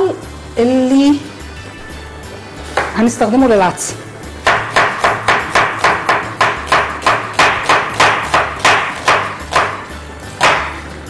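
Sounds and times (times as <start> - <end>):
knife chopping on wooden board: 4.4 - 10.9.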